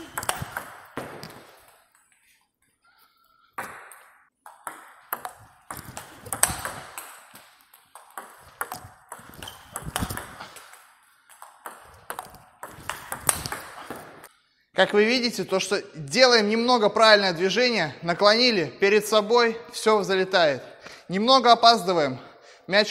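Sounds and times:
table tennis ball clicking: 0:00.1 - 0:01.0, 0:04.5 - 0:13.8.

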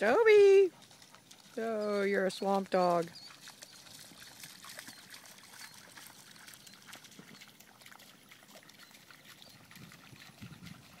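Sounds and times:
shallow water splashing: 0:00.0 - 0:11.0.

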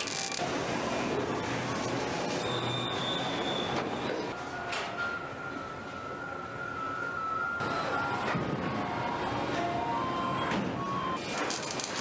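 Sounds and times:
welding torch hissing and crackling: 0:00.0 - 0:02.7, 0:11.2 - 0:12.0.

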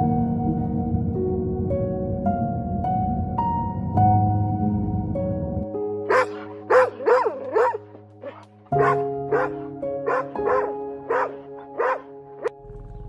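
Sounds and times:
background music sustained notes: 0:00.0 - 0:13.0
dog barking sharply: 0:06.1 - 0:12.1.

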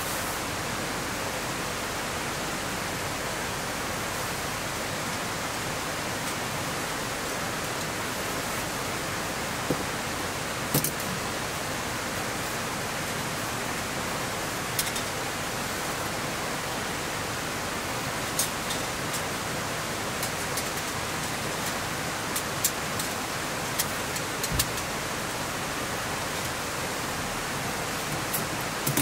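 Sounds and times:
steady rain falling: 0:00.0 - 0:29.0.

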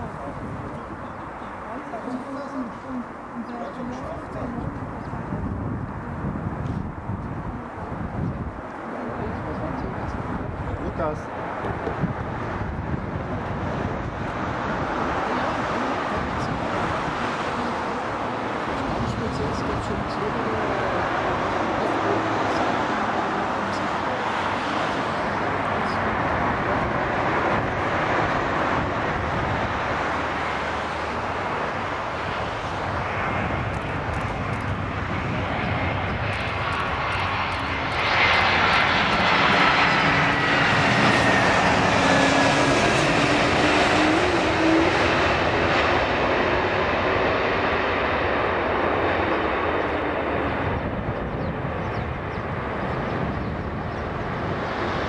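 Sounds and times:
jet engines running: 0:00.0 - 0:55.0
falling engine whine: 0:11.5 - 0:51.1.

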